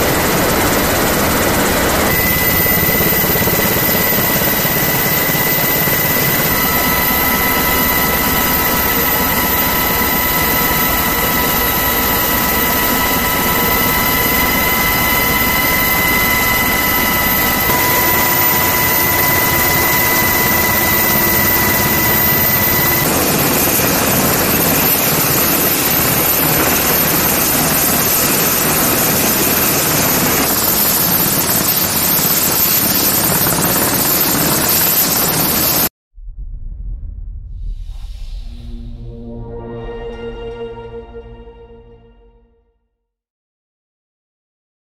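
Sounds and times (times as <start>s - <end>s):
helicopter engine whine: 0.0s - 35.9s
helicopter rotor noise: 0.0s - 35.9s.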